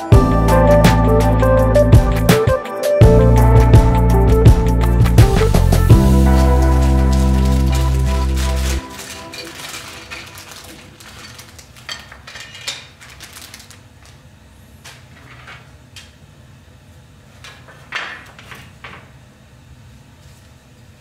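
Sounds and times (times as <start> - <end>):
plastic toy parts clattering: 6.8 - 13.8.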